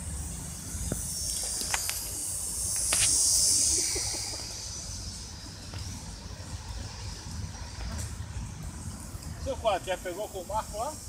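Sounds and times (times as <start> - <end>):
drone propellers whirring: 0.0 - 11.0.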